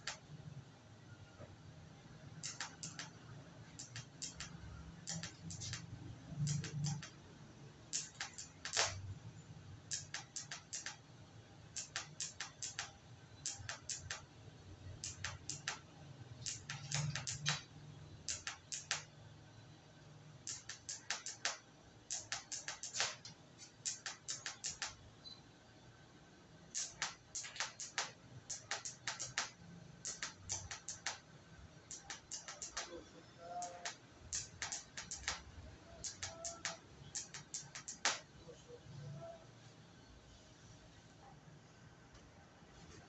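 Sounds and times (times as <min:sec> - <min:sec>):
welding arc crackling: 0:02.4 - 0:07.2, 0:07.9 - 0:09.1, 0:09.9 - 0:11.0, 0:11.7 - 0:19.1, 0:20.4 - 0:25.0, 0:26.6 - 0:38.2.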